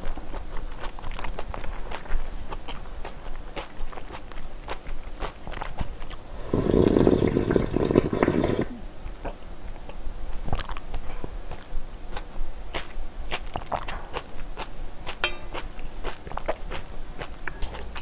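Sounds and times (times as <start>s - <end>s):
wet chewing of noodles: 0.0s - 18.0s
slurp of broth: 6.3s - 8.8s.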